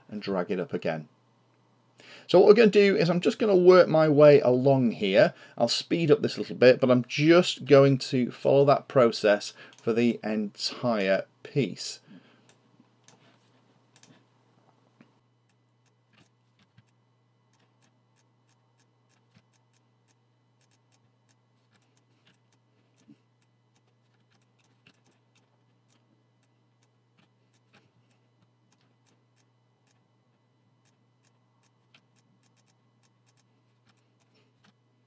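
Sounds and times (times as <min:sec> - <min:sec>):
low steady hum: 0:00.0 - 0:35.0
computer mouse and keyboard clicks: 0:15.5 - 0:30.0, 0:30.8 - 0:34.8.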